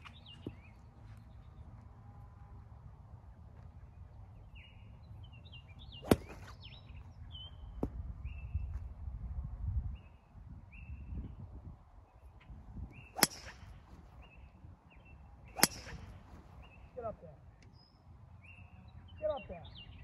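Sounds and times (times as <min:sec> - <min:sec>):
bird chirping: 0:03.8 - 0:08.7, 0:12.1 - 0:20.0
golf club striking ball: 0:06.0 - 0:06.6, 0:13.1 - 0:14.0, 0:15.5 - 0:16.8.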